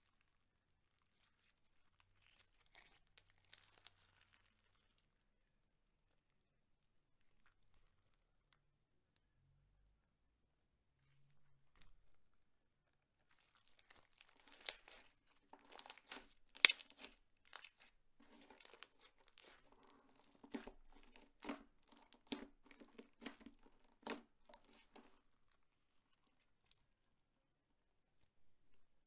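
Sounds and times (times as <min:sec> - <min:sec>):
slime and plastic bags crinkling: 0:00.1 - 0:05.0, 0:13.2 - 0:26.8.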